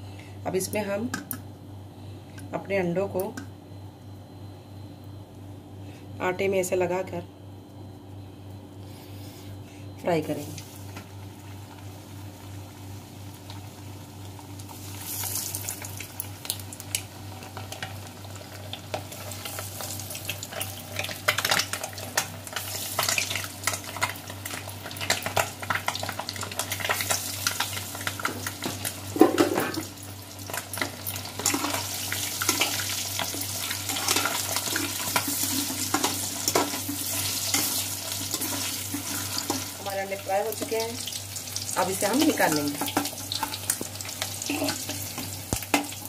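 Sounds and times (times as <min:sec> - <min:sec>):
eggs sizzling in hot oil: 0:10.4 - 0:46.0.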